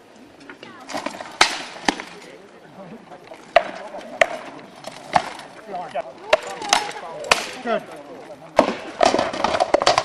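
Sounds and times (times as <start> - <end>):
weapons clacking on shields: 8.6 - 10.0.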